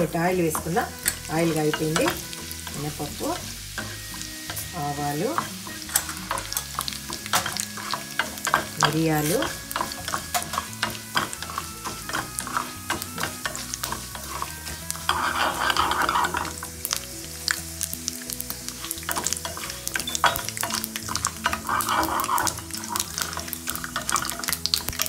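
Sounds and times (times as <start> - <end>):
oil sizzling in a pan: 0.0 - 25.0
seeds crackling and popping: 0.0 - 25.0
spatula scraping a pan: 0.0 - 25.0.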